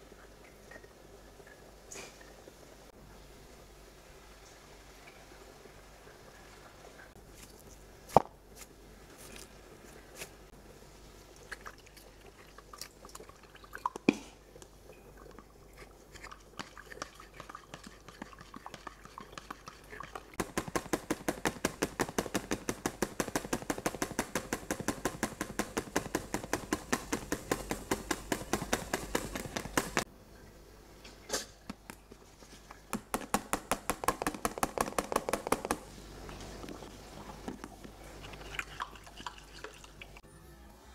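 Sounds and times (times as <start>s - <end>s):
whisk beating mixture in bowl: 15.7s - 30.1s, 32.9s - 35.9s
sharp knocks: 32.9s - 35.8s.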